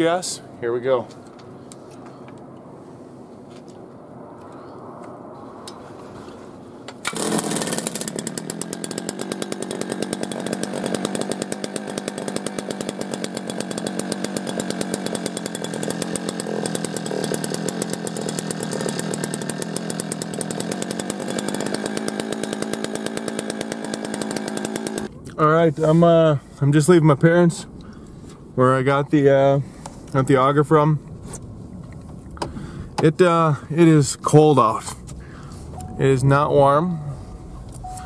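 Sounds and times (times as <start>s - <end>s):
two-stroke engine buzzing: 7.0s - 25.1s, 35.0s - 38.0s.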